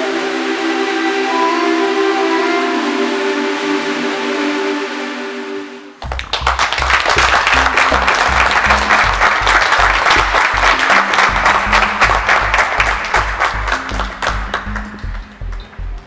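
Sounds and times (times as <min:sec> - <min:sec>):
applause and cheering: 0:06.0 - 0:15.8
music with fast bass beat: 0:06.0 - 0:16.0.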